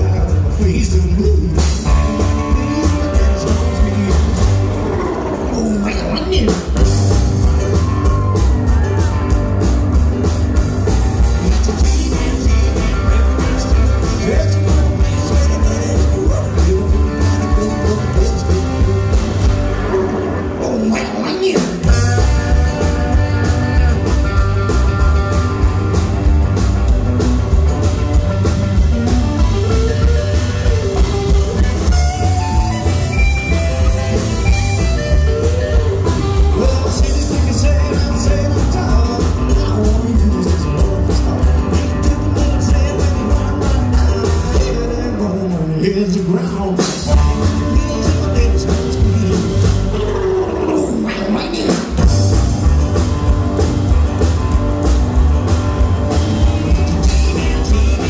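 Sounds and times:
upright double bass: 0.0 - 4.9, 6.8 - 19.9, 21.8 - 45.4, 47.0 - 50.7, 52.0 - 58.0
drums: 0.0 - 58.0
electric and acoustic guitars: 0.0 - 58.0.

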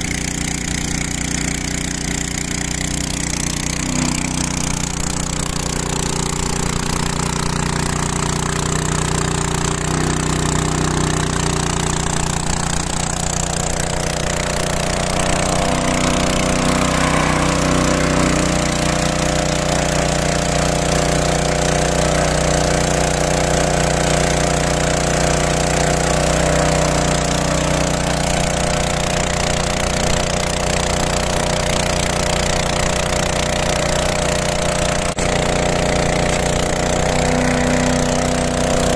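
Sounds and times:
motor pump running: 0.0 - 38.9.

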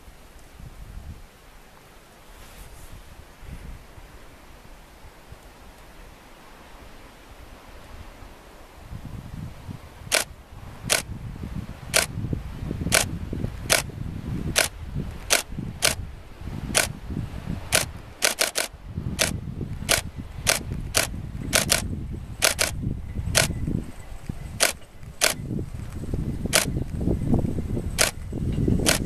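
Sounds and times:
camera shutter clicking: 14.6 - 16.0, 17.7 - 21.8, 22.4 - 22.8, 24.6 - 25.4.

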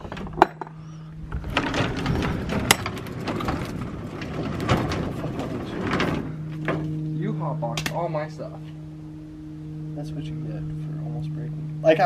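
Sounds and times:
roll-up door rattling: 1.3 - 7.0.

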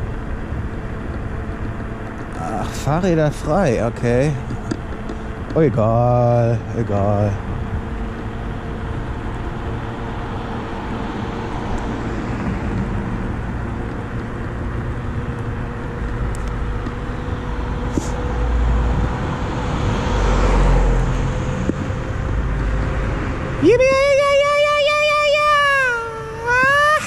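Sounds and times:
thin steady whine: 0.0 - 19.2
road and wind noise: 0.0 - 27.0.

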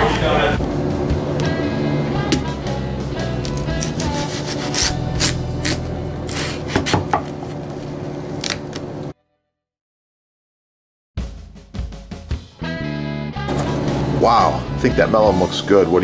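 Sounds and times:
background music with held notes: 0.0 - 6.6, 11.3 - 16.0
knife cutting watermelon rind: 3.4 - 7.4.

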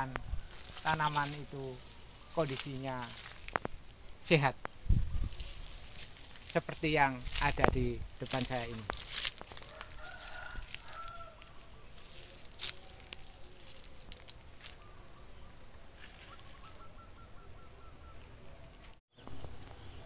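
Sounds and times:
bird calls: 0.0 - 3.5, 9.8 - 20.0
outdoor background noise: 0.0 - 20.0.

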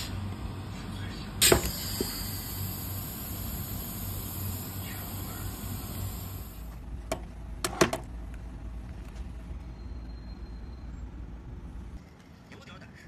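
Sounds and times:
machine hum with high whine: 0.0 - 13.0.

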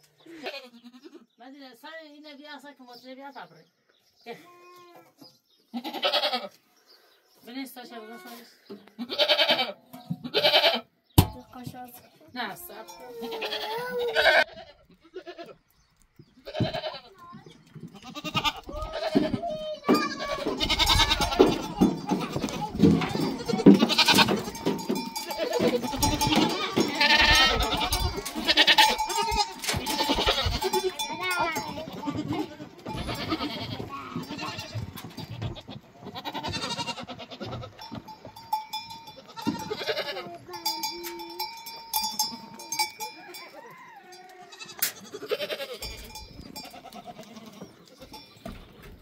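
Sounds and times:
goats bleating: 0.2 - 1.2, 5.7 - 6.6, 7.9 - 10.9, 12.7 - 15.7, 16.4 - 38.1, 39.0 - 48.3
livestock neck bells ringing: 12.4 - 14.4, 18.2 - 49.0.

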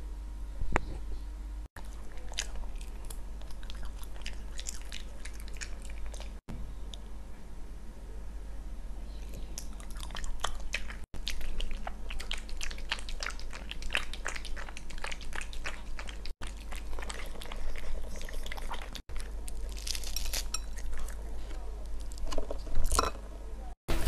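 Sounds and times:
dog lapping and chewing: 1.8 - 6.4, 9.6 - 19.6.

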